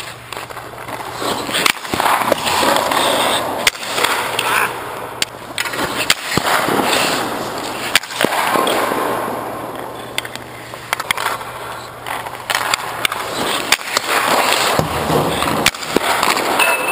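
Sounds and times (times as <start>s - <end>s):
skate blades scraping ice: 0.0s - 16.6s
leg pads sliding on ice: 0.4s - 4.7s, 5.6s - 8.9s, 13.0s - 16.5s.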